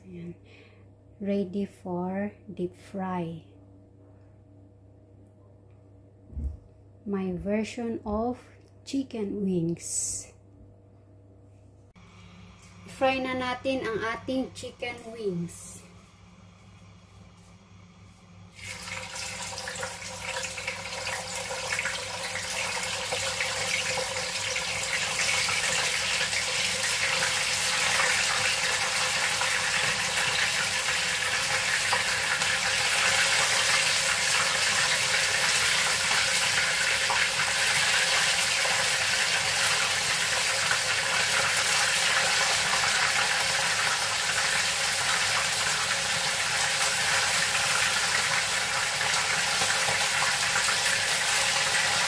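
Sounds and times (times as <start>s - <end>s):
chicken wings sizzling in oil: 18.5s - 52.0s.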